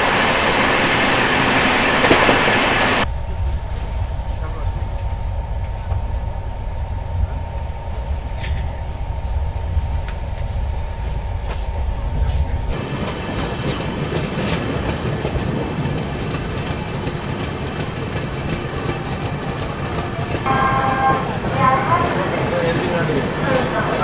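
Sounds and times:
train rumble inside coach: 0:00.0 - 0:24.0
train wheels clattering on track: 0:07.1 - 0:24.0.

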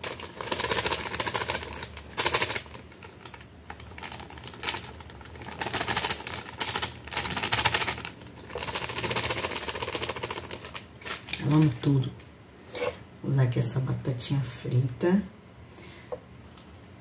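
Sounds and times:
plastic packet crinkling: 0:00.0 - 0:12.2.

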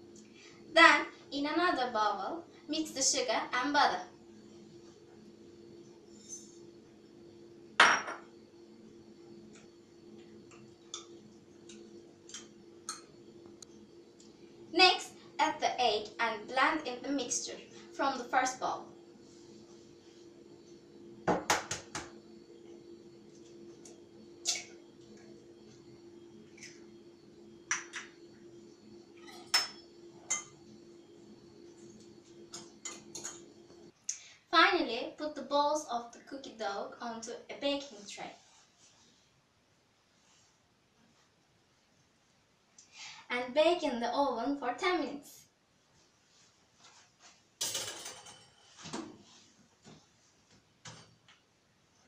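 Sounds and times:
faint steady hum: 0:00.0 - 0:52.0
utensil clinking glass bowl: 0:29.2 - 0:30.6.

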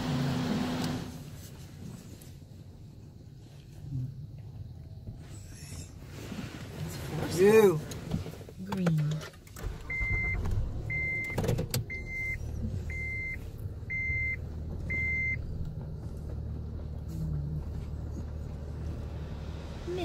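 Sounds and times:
low hum in car cabin: 0:00.0 - 0:20.0
electronic beeps: 0:09.9 - 0:15.4.

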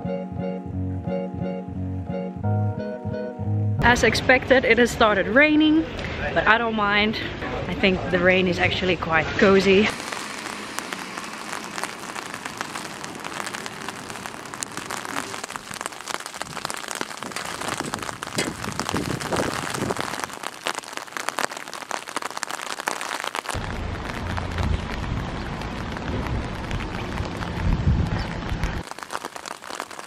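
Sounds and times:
rain falling on water: 0:09.8 - 0:30.0
rain on an umbrella: 0:09.8 - 0:30.0
low rumble: 0:23.6 - 0:28.8.

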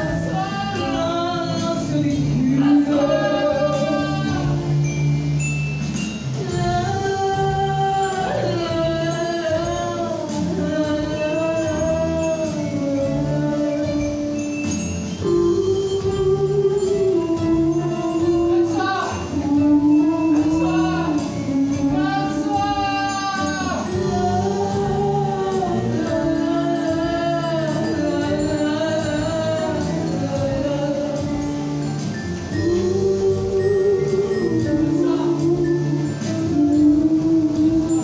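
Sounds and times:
woman singing with vibrato: 0:00.0 - 0:05.3, 0:06.3 - 0:38.0
live band playing: 0:00.0 - 0:38.0.

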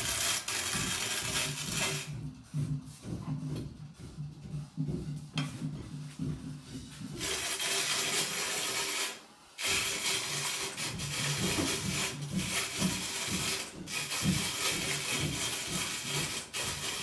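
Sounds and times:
coffee mill grinding beans: 0:00.0 - 0:02.2, 0:07.2 - 0:17.0.

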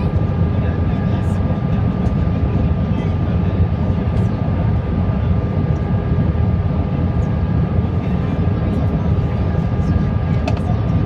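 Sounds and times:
engine and airflow roar: 0:00.0 - 0:11.0.

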